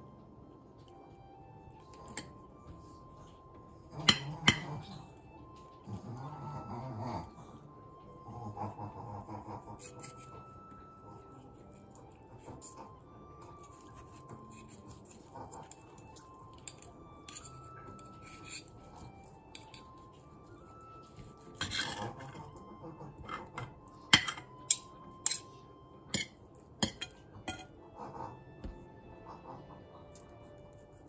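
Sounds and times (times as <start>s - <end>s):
faint background music: 0.0s - 31.0s
fork scraping porcelain plate: 4.0s - 5.0s, 9.6s - 10.5s, 13.5s - 20.0s, 21.1s - 22.6s, 23.2s - 25.5s, 26.1s - 28.1s.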